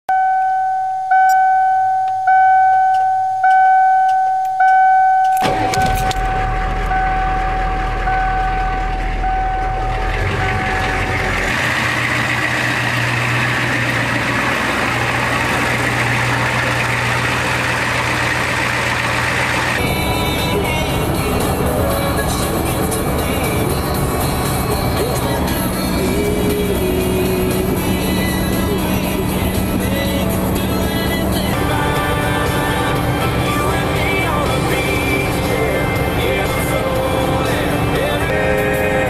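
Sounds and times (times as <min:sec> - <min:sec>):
dashboard warning chime: 0:00.1 - 0:11.6
diesel engine cranking and idling: 0:02.4 - 0:39.0.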